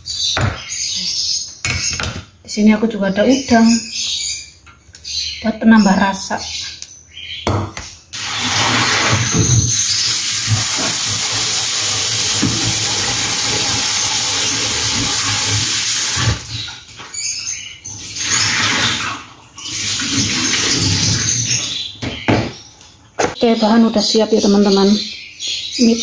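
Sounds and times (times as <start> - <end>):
vegetables rinsed in colander: 8.2 - 16.7, 18.0 - 21.6.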